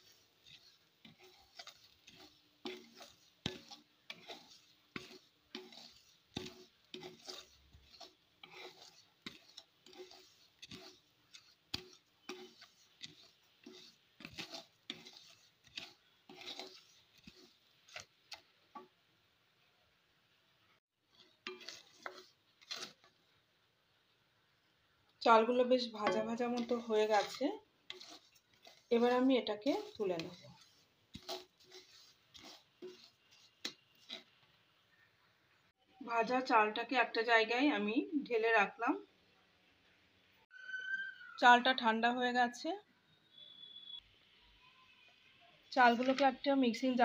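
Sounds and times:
spatula scraping in metal pan: 0.0s - 19.0s, 21.0s - 23.2s, 25.2s - 34.9s, 45.2s - 47.0s.

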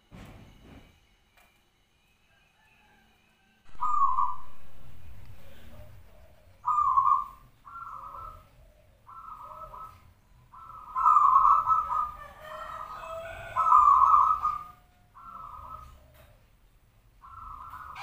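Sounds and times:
dove cooing: 3.7s - 16.6s, 17.2s - 18.0s.

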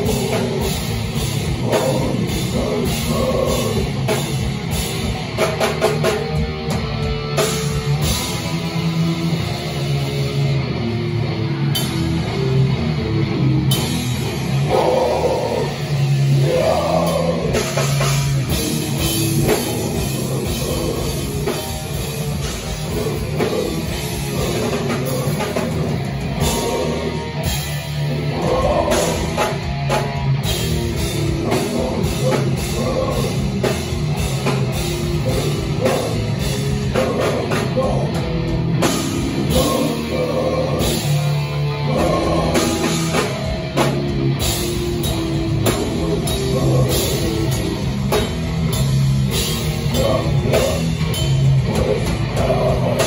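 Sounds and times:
person singing: 0.0s - 4.2s, 14.6s - 18.6s, 19.4s - 29.7s, 31.0s - 34.0s, 35.0s - 38.3s, 39.1s - 43.3s, 45.6s - 47.9s, 49.8s - 53.0s
electric guitar: 0.0s - 53.0s
pounding drum kit: 0.0s - 53.0s.

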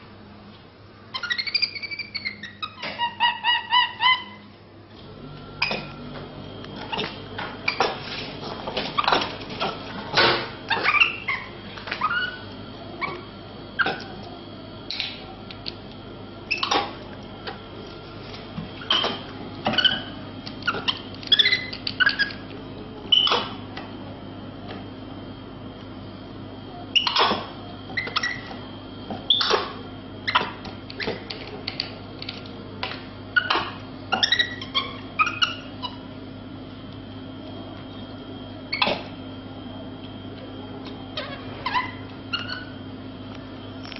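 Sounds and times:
steady low hum: 0.0s - 43.9s.

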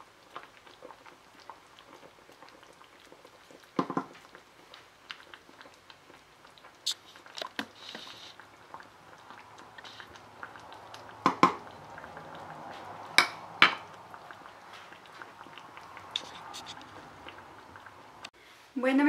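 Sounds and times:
wooden spoon scraping a frying pan: 6.9s - 8.6s, 16.0s - 17.2s.

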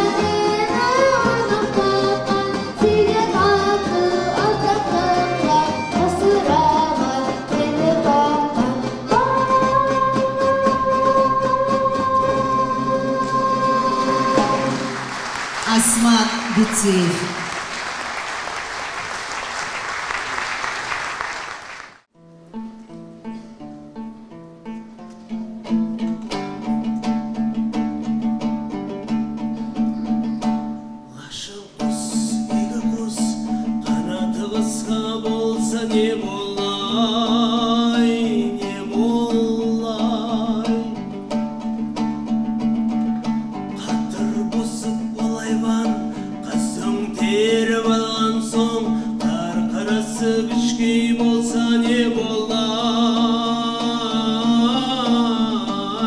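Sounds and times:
man singing with vibrato: 0.0s - 14.8s, 31.1s - 41.2s, 43.7s - 56.0s
plucked dombras strumming: 0.0s - 18.1s, 22.2s - 56.0s.

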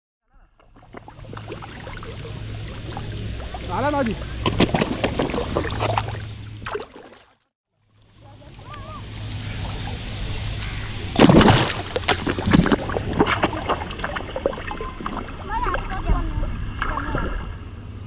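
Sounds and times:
water splashing and sloshing: 0.4s - 18.0s
loud splash: 0.7s - 7.4s, 11.1s - 17.6s.

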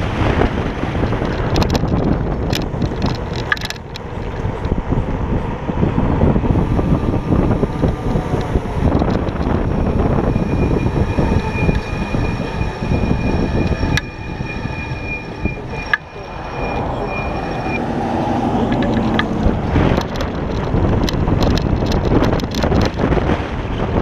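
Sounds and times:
steady high whine: 0.0s - 23.2s
wind buffeting microphone: 0.0s - 24.0s.

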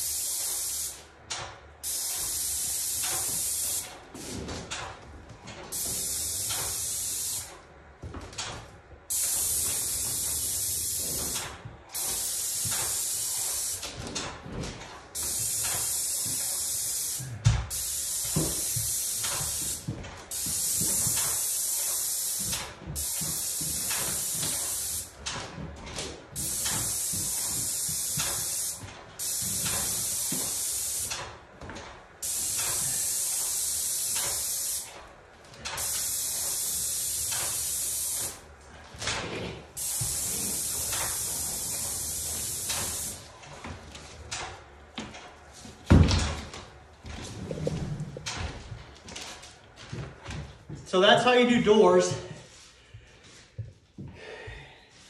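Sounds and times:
paint spray gun hissing: 0.0s - 1.0s, 1.8s - 3.9s, 5.7s - 7.5s, 9.1s - 13.8s, 15.2s - 25.1s, 26.4s - 31.2s, 32.2s - 34.9s, 35.8s - 38.4s, 39.8s - 43.2s.

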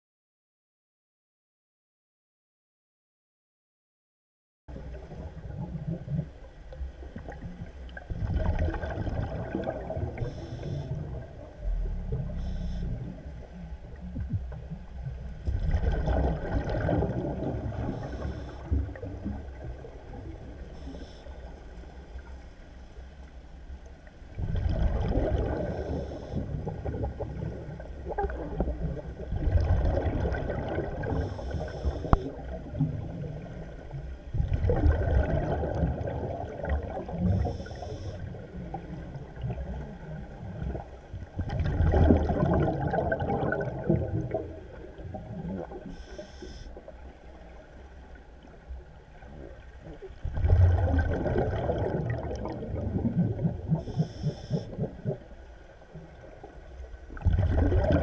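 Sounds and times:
exhaled bubbles underwater: 4.7s - 22.4s, 24.2s - 58.0s
regulator hiss: 12.4s - 13.1s, 31.2s - 32.3s, 46.0s - 46.8s.

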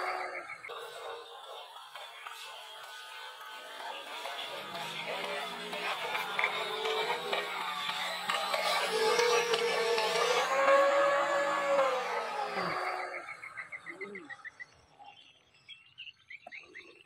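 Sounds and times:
model boat motor whining: 0.0s - 14.9s
frogs chirping: 10.1s - 17.0s.

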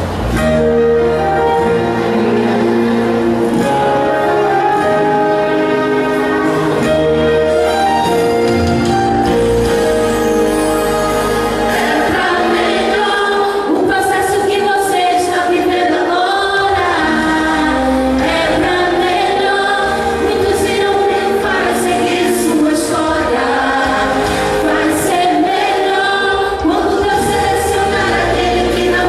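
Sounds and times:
woman singing through loudspeakers: 11.9s - 29.0s.

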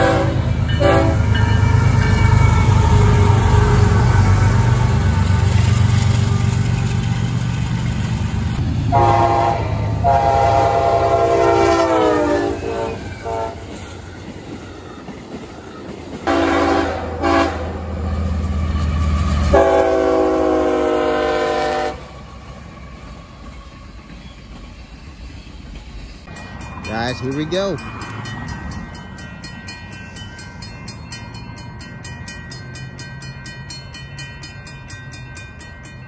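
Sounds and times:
locomotive air horn blasts: 0.0s - 1.3s, 8.9s - 13.8s, 16.3s - 17.8s, 19.5s - 22.1s
rumble of rolling train: 0.0s - 36.0s.

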